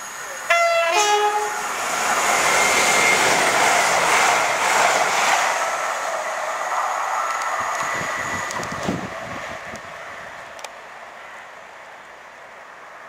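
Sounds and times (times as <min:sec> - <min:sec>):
diesel train passing at speed: 0:00.0 - 0:13.0.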